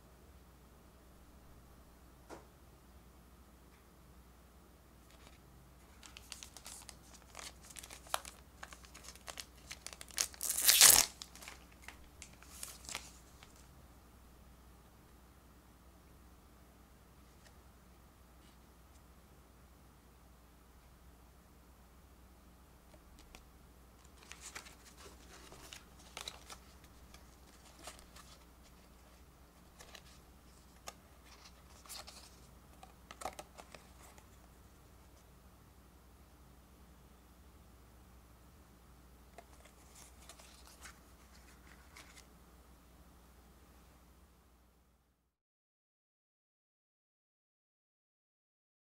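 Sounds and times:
cards clicking and rustling: 0:05.1 - 0:13.6, 0:24.0 - 0:29.0, 0:29.7 - 0:34.3
plastic wrapper crinkling: 0:05.9 - 0:13.6, 0:24.0 - 0:34.4
wrapper ripping open: 0:06.0 - 0:13.6, 0:24.1 - 0:28.4.

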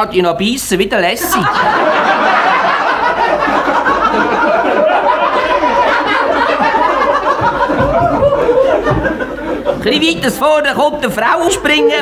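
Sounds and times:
audience laughing: 0:01.2 - 0:10.3.

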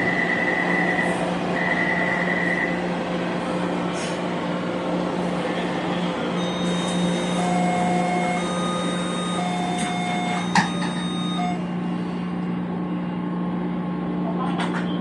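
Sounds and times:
whining tones: 0:00.0 - 0:03.6, 0:04.9 - 0:11.9
train cabin hum and rumble: 0:00.0 - 0:15.0.

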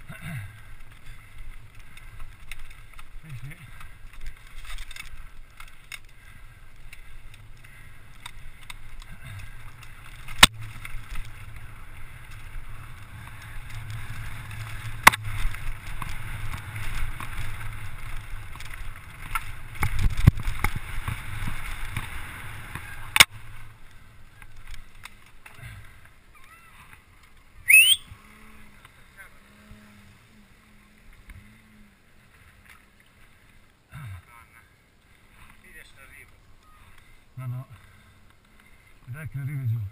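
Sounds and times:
bike rattling: 0:00.0 - 0:33.7
bike tyres over stones: 0:00.0 - 0:39.9
bike knocking on rocks: 0:06.9 - 0:23.6
brief high squeal: 0:27.7 - 0:28.1.

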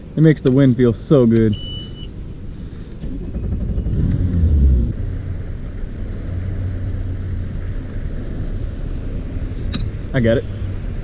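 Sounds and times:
outboard motor running: 0:03.2 - 0:04.9.

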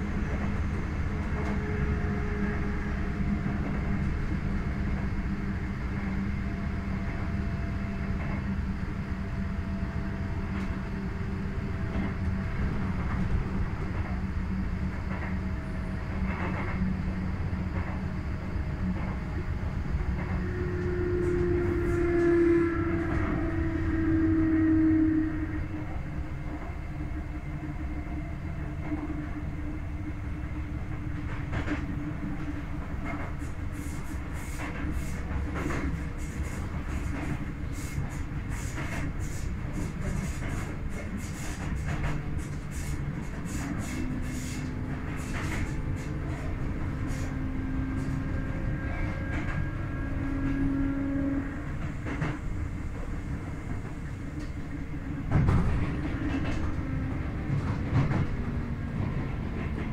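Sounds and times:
train wheels rumbling on rails: 0:00.0 - 0:59.9
rail-joint clicks: 0:14.9 - 0:15.4, 0:16.0 - 0:16.8, 0:17.7 - 0:18.1, 0:30.8 - 0:50.8, 0:51.6 - 0:59.9.

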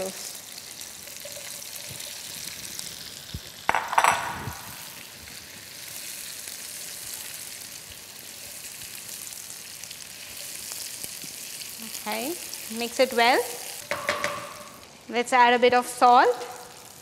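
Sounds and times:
food sizzling in hot oil: 0:00.0 - 0:17.0
kitchenware clatter: 0:03.7 - 0:04.6, 0:13.8 - 0:14.8.

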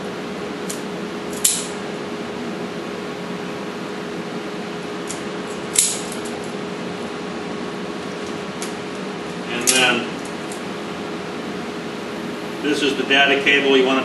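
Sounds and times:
steady hum: 0:00.0 - 0:14.0
cable stripper snapping: 0:05.1 - 0:06.3, 0:09.6 - 0:09.9.

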